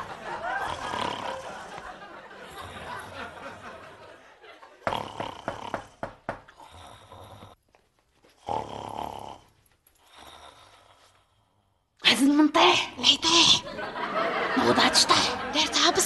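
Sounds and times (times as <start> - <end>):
person snoring loudly: 0.0 - 1.9, 4.8 - 7.6, 8.4 - 9.5.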